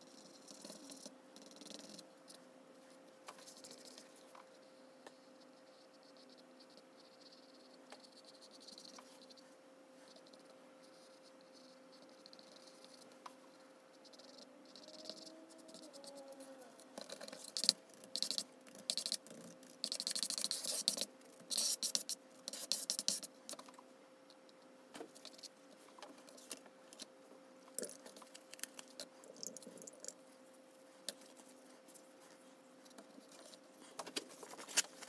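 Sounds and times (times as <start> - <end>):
faint steady hum: 0.0 - 35.0
brush scraping paint: 17.0 - 23.3.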